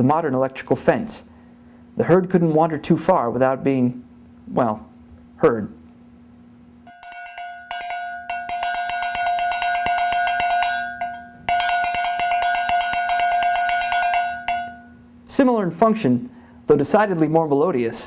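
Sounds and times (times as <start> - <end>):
cowbell clanking: 6.9 - 15.0.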